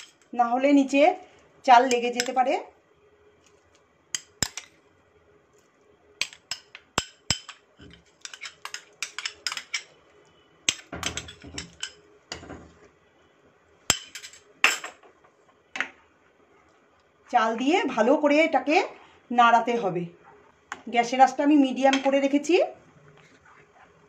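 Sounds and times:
spatula scraping metal pot: 7.9 - 9.9.

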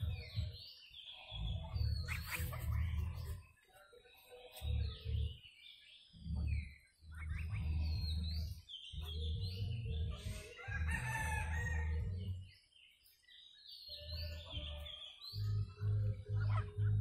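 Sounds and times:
geese and fowl calling: 1.2 - 3.4, 10.1 - 12.3.

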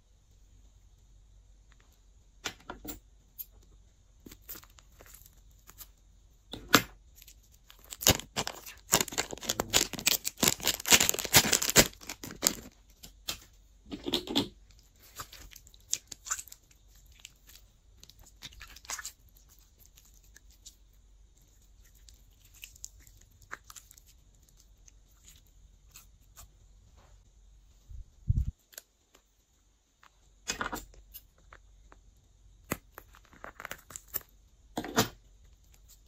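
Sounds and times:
slime squelching and crackling: 4.1 - 6.2, 7.0 - 26.7, 30.9 - 34.7.

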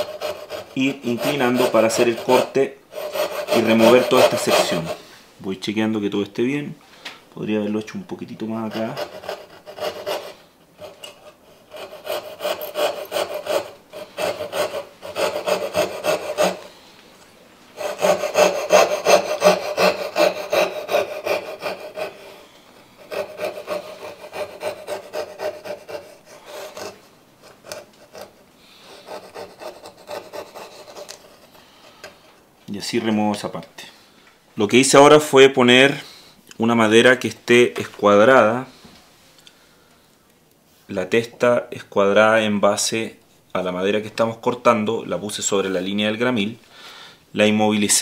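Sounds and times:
saw cutting through wood: 0.0 - 5.0, 11.6 - 16.7, 17.8 - 22.3, 23.0 - 27.0.

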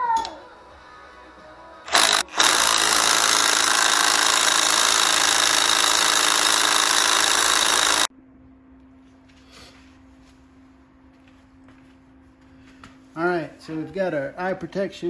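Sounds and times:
impact wrench hammering: 1.9 - 8.1.

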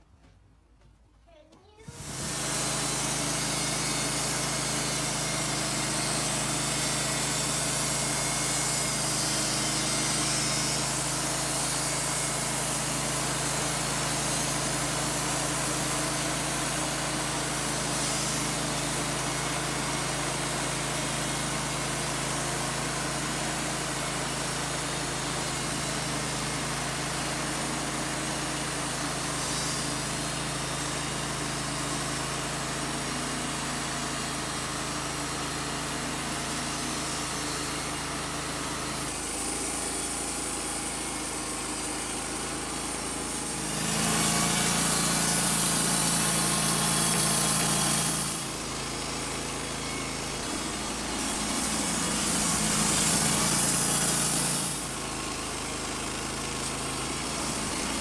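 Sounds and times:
band blade sawing wood: 1.9 - 20.5, 36.2 - 55.1, 56.0 - 58.0
sawmill engine humming: 1.9 - 58.0.

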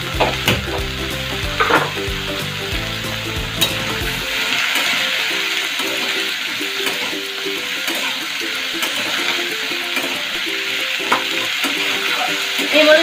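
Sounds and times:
vegetables sizzling in oil: 0.0 - 13.0
spatula scraping and knocking pan: 0.2 - 2.1.

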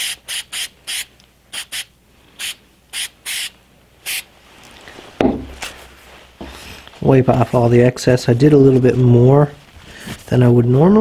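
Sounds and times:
aerosol spray spritzes: 0.0 - 4.3
thump: 5.2 - 5.6.

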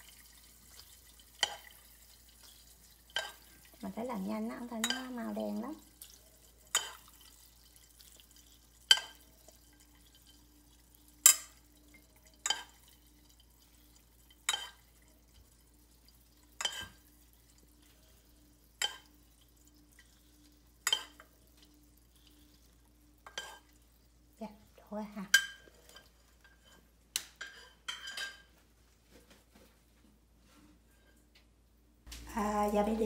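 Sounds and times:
faint steady hum: 0.0 - 33.0
kitchenware clinking: 0.8 - 3.8, 4.6 - 13.5, 14.3 - 15.5, 16.4 - 17.2, 18.8 - 20.2, 20.8 - 21.8, 23.2 - 23.8, 25.2 - 28.6.

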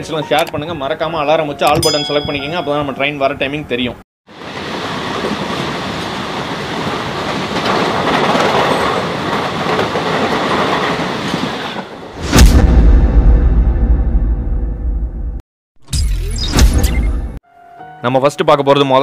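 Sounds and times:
metro train rumbling in tunnel: 4.4 - 12.2
whoosh with deep bass hit: 12.2 - 15.4.

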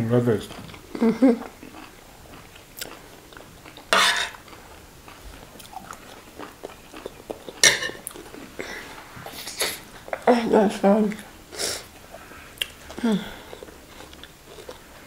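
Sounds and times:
chewing: 0.4 - 10.3, 11.9 - 15.0
spoons scraping on plates: 3.9 - 4.4, 7.6 - 8.0.

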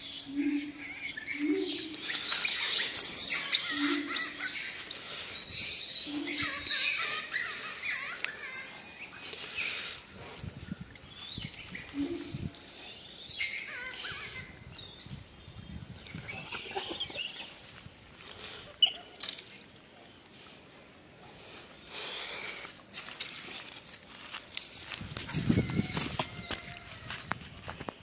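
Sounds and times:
high-pitched squealing calls: 0.7 - 10.0.

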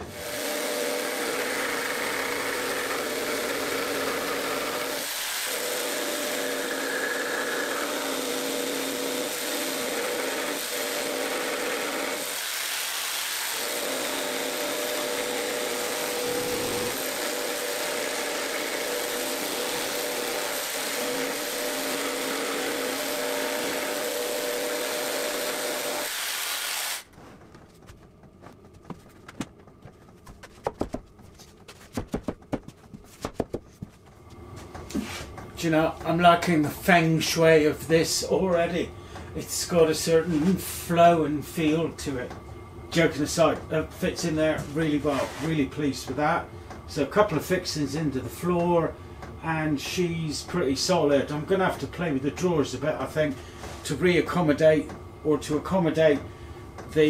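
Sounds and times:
jigsaw cutting through chipboard: 0.0 - 27.1.

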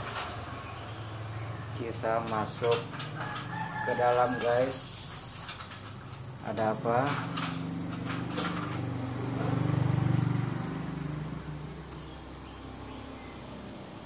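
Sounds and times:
vehicle engine hum passing by: 7.2 - 14.0.

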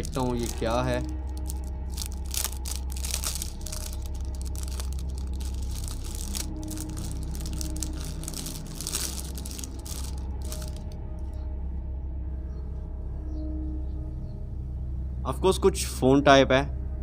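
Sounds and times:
packaging rustling and crinkling: 0.0 - 11.0
steady low hum: 0.0 - 17.0.

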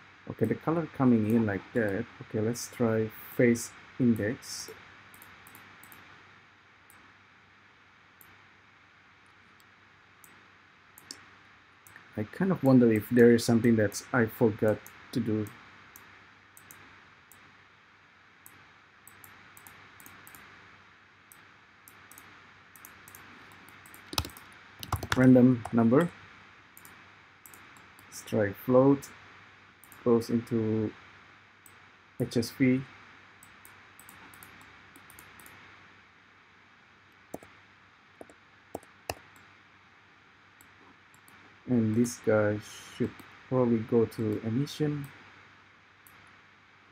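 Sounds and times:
low steady hiss: 0.0 - 46.9
computer mouse clicks: 5.1 - 6.1, 11.0 - 11.2, 14.6 - 17.5, 18.4 - 20.5, 21.3 - 25.8, 26.8 - 28.1, 29.8 - 30.0, 33.4 - 35.6, 37.3 - 37.6, 40.6 - 42.1
faint ticks: 14.7 - 17.5
mouse and keyboard clicks: 21.3 - 25.8.

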